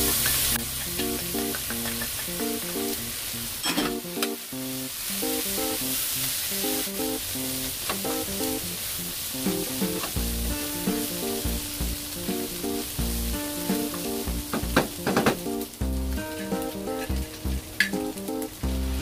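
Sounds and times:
bouncy background tune: 0.0 - 3.0, 9.4 - 19.0
meat sizzling in a wok: 0.0 - 19.0.

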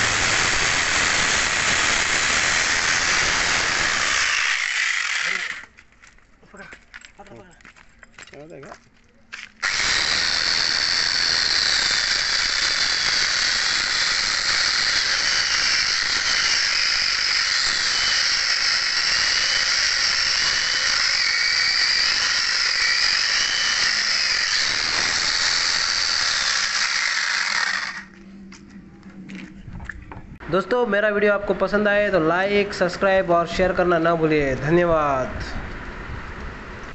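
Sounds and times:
power chainsaw cutting log: 0.0 - 5.7, 9.6 - 28.1.

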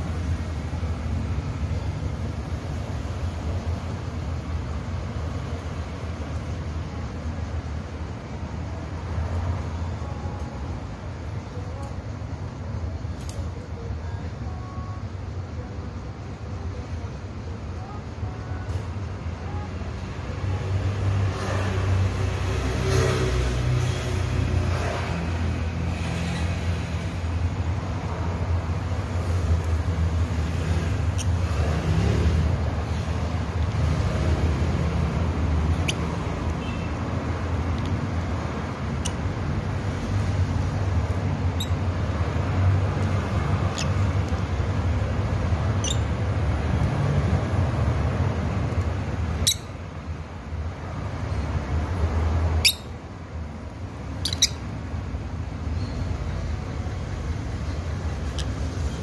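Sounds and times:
lovebirds chirping: 30.9 - 31.8, 34.8 - 37.0, 43.2 - 44.4, 45.6 - 46.2, 49.3 - 49.8, 52.6 - 53.0, 54.0 - 54.8.

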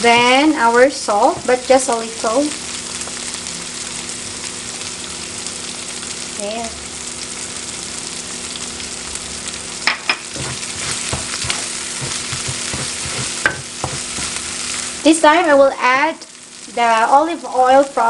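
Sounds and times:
sauce sizzling in frying pan: 0.0 - 18.0
wooden spatula scraping sauce: 10.3 - 14.8.

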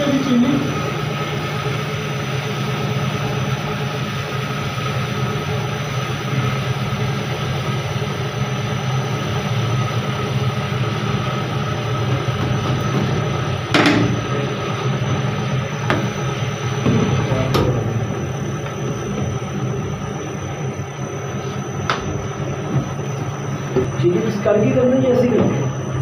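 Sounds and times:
mixer motor hum: 0.0 - 26.0
sharp knock: 13.7 - 14.2.

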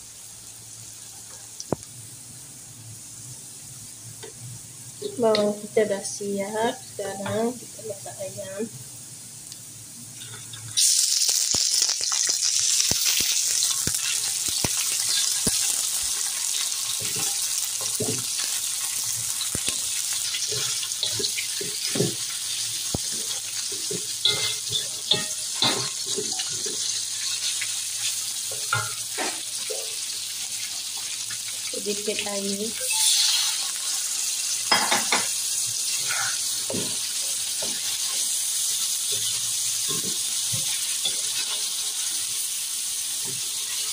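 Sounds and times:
chicken sizzling in hot oil: 0.0 - 43.9
wooden spatula scraping a wok: 35.9 - 37.0.

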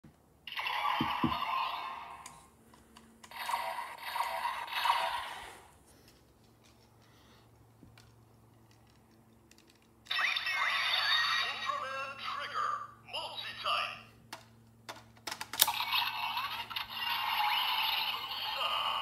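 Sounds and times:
toy electronic sound effects: 10.1 - 11.8.

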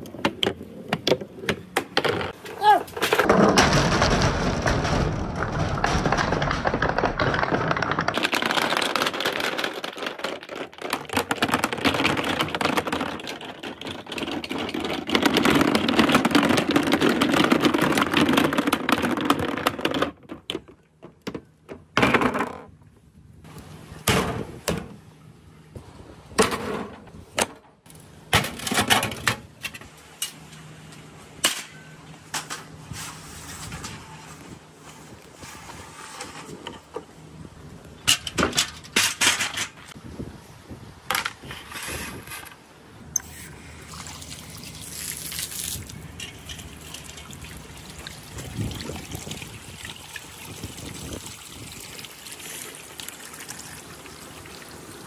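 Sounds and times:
balls clacking together: 0.0 - 22.8
marbles rolling down wooden chute: 3.2 - 20.3.

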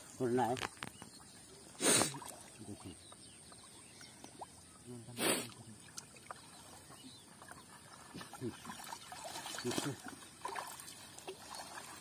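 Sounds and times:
water sloshing and splashing: 5.6 - 12.0.

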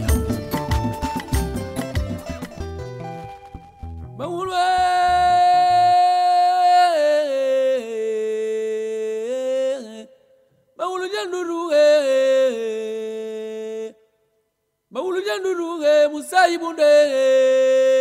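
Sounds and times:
backing beat: 0.0 - 4.8
person singing long notes: 3.5 - 10.1.

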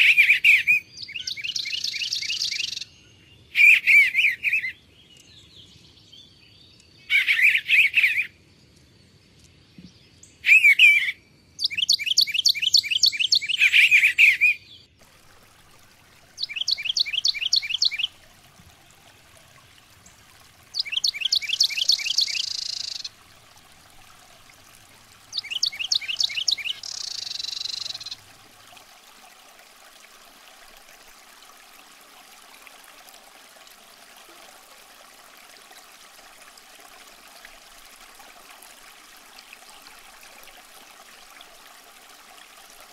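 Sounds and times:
faint running water: 0.0 - 10.7, 11.6 - 42.9
songbirds singing: 0.0 - 28.5.

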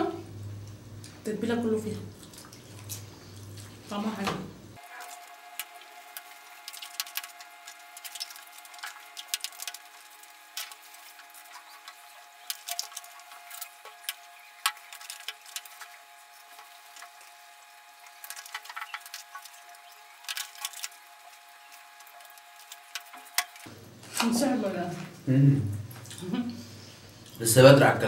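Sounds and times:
wet chewing: 1.9 - 4.0, 4.8 - 23.7.

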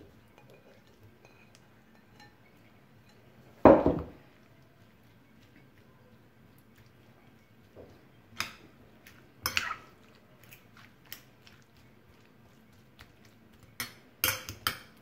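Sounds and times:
spoon clinking against glass: 0.4 - 3.2
squelchy mixing: 4.2 - 15.0.

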